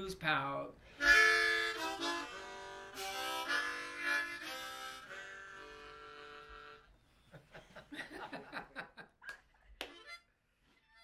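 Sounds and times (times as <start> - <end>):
harmonica playing chords: 0.8 - 7.2.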